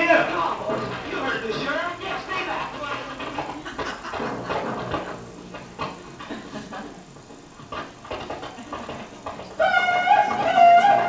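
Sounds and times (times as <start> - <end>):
faint knocks and rustling: 0.0 - 11.0
western film score music: 9.6 - 11.0.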